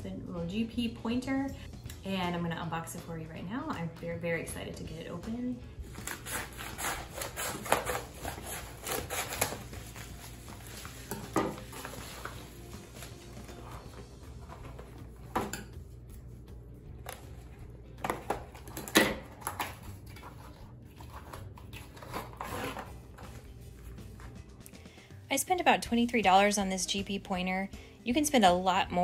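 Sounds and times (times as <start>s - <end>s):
scissors cutting paper mailer: 5.9s - 15.0s, 17.0s - 23.4s
paper and cardboard rustling: 5.9s - 15.3s, 17.0s - 24.4s.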